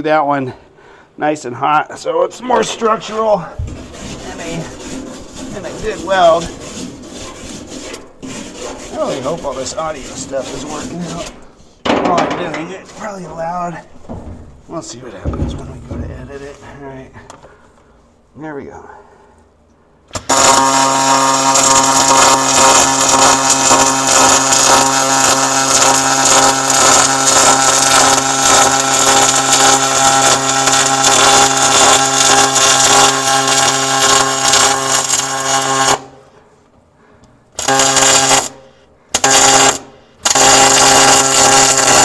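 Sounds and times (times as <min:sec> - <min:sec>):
short welding bursts: 0:20.1 - 0:36.2, 0:37.6 - 0:42.0
welding arc buzzing hiss: 0:20.1 - 0:36.3, 0:37.5 - 0:42.0.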